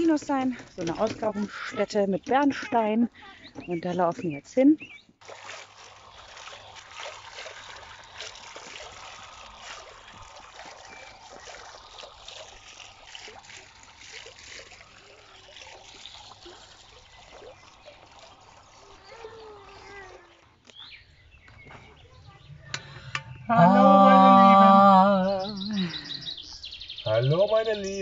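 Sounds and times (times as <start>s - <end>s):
fountain splashing into basin: 5.2s - 20.6s.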